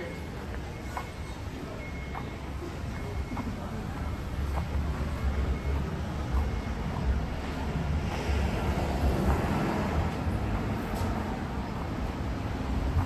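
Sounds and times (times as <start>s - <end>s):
low rumble of cars: 0.0s - 13.0s
vehicle passing by: 7.6s - 12.8s.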